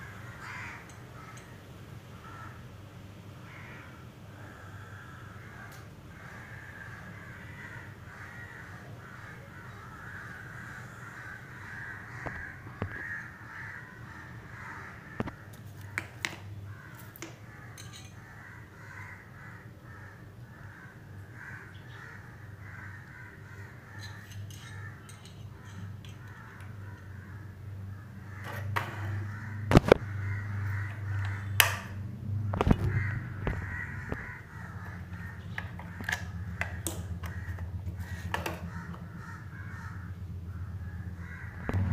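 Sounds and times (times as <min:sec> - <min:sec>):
crows cawing: 0:00.0 - 0:01.6, 0:02.2 - 0:02.7, 0:03.4 - 0:41.9
handling clicks and knocks: 0:28.4 - 0:30.0, 0:34.8 - 0:39.0.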